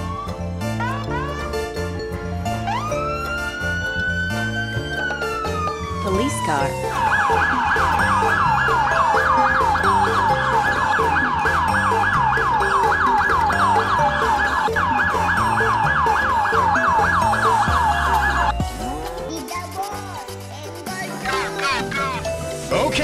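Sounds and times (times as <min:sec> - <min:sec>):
music track: 0:00.0 - 0:23.0
toy police siren warbling: 0:02.6 - 0:18.6.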